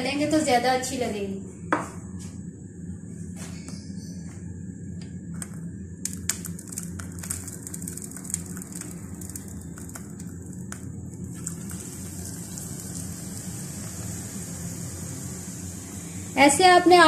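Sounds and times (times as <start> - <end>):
low steady hum: 0.0 - 17.0
oil crackling and sizzling: 5.4 - 16.6.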